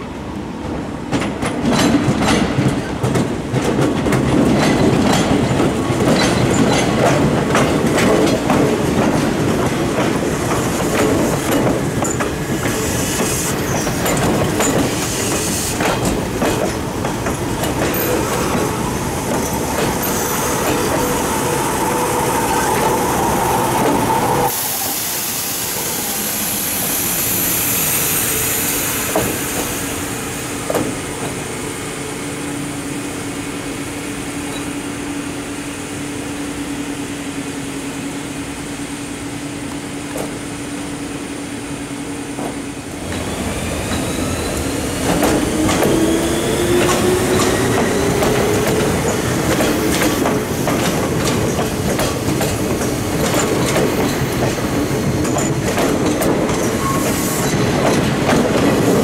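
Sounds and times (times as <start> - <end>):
train wheels clicking over rail joints: 1.1 - 21.4, 28.9 - 31.4, 42.3 - 59.0
train wheels squealing: 12.0 - 15.8, 17.9 - 30.1, 43.3 - 50.3, 56.5 - 57.8.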